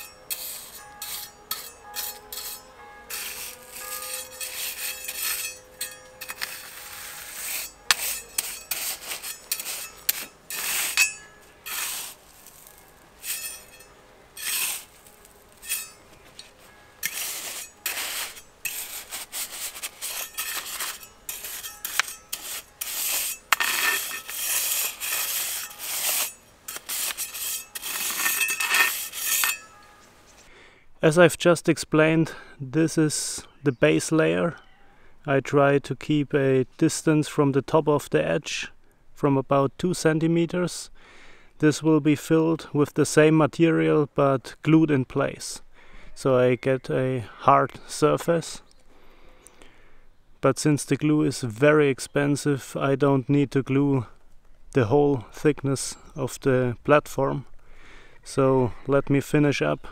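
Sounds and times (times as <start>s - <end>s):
metal trowel scraping grit: 0.0s - 30.1s.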